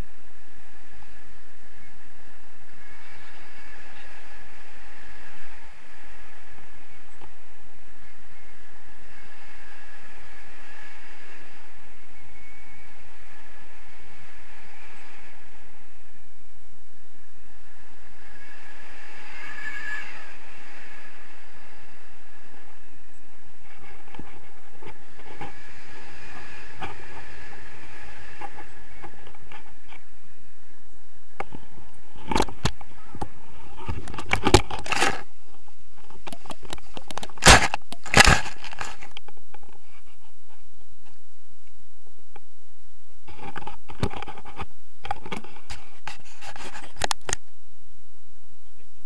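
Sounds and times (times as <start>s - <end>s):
wind on camera microphone: 0.0s - 49.0s
knocks and scrapes of gear: 33.7s - 35.3s, 36.0s - 40.2s.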